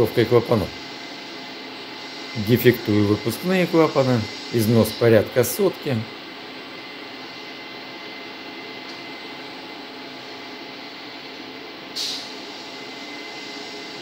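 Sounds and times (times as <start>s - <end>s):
machinery hum and hiss: 0.0s - 14.0s
short hiss: 12.0s - 12.3s.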